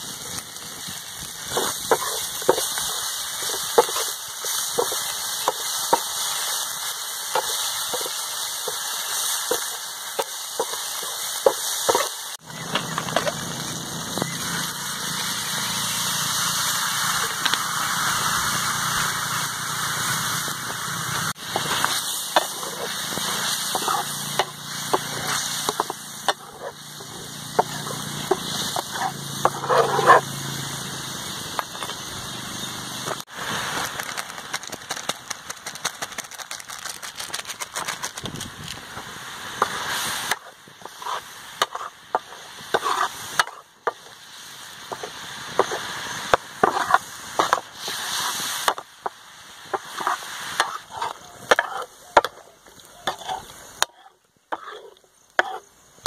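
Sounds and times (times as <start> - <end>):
curry simmering and sizzling: 0.0 - 56.0
sharp clicks and crackles: 9.5 - 14.4, 17.2 - 17.6, 33.1 - 39.0
metal ladle scraping pan: 21.4 - 30.2, 39.6 - 44.2, 49.8 - 52.4, 53.0 - 55.6.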